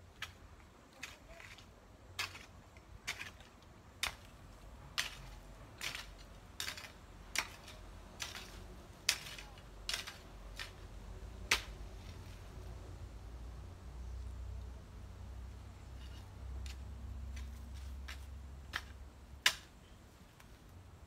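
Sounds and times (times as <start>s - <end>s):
hoe chopping into grassy soil: 2.2s - 3.4s, 5.0s - 10.8s, 16.6s - 19.7s.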